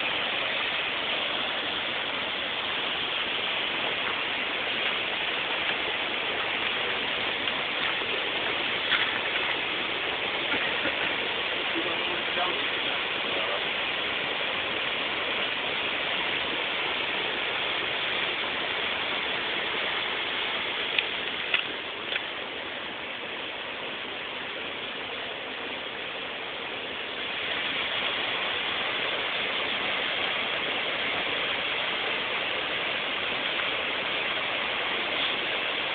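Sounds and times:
waterfall rushing: 0.0s - 35.9s.

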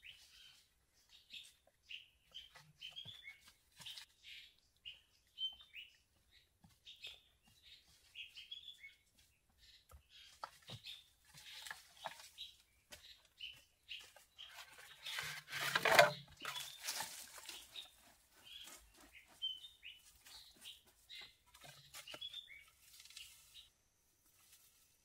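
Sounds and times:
small birds chirping: 0.0s - 25.0s
wooden poles clattering: 10.4s - 12.5s, 14.4s - 18.1s
footsteps on dry leaves: 10.8s - 25.0s.

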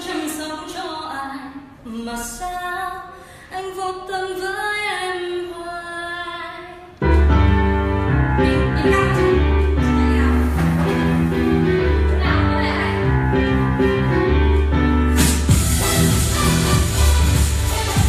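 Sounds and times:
loud pop music with bass: 7.3s - 18.0s.

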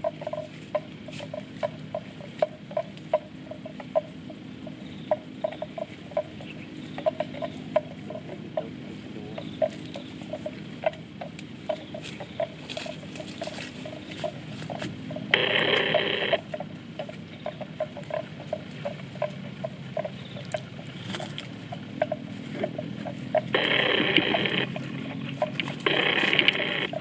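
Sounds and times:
buffalo chewing grass: 0.0s - 27.0s
bursts of hissing noise: 15.3s - 16.4s, 23.5s - 24.8s, 25.8s - 27.0s.

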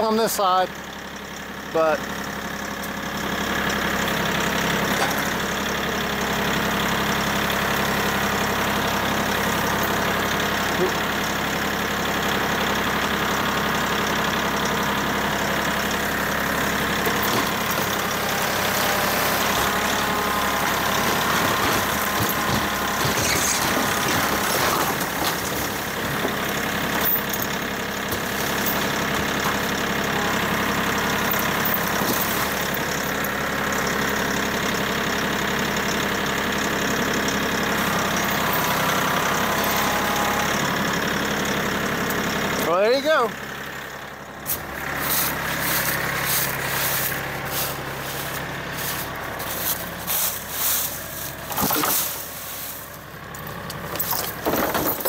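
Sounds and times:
tractor diesel engine running: 0.0s - 55.0s
wooden shed collapsing: 15.5s - 33.2s, 47.8s - 52.9s, 53.9s - 55.0s.

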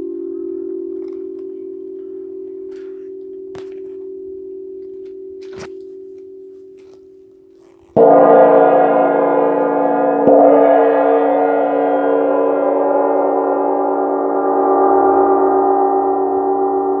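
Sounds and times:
gong ringing: 8.0s - 17.0s.

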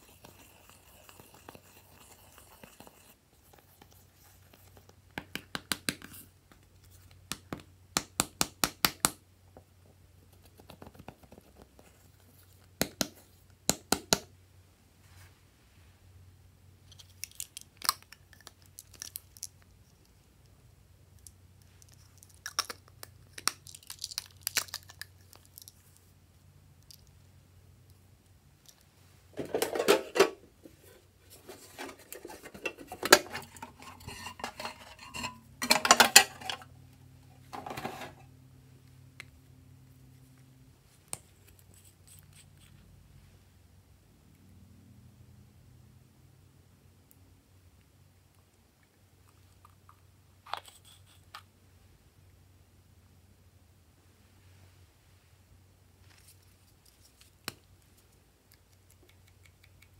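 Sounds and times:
plastic cases scraping on glass: 30.9s - 36.7s, 37.5s - 38.2s.

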